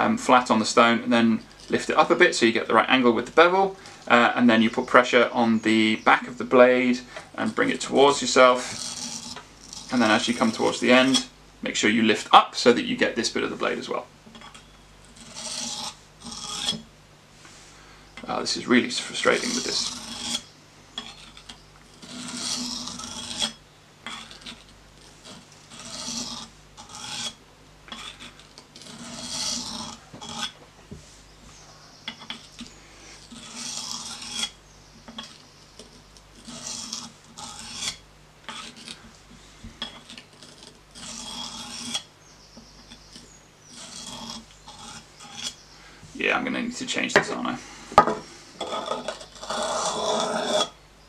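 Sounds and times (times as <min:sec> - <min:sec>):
knife scraping on sharpening stone: 0:07.8 - 0:11.3, 0:14.3 - 0:16.8, 0:19.4 - 0:30.6, 0:33.2 - 0:39.0, 0:39.8 - 0:42.1, 0:42.8 - 0:45.6, 0:48.1 - 0:50.8.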